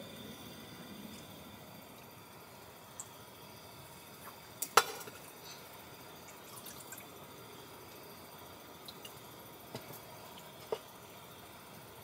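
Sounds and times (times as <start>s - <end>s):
liquid pouring into cup: 6.2s - 7.4s.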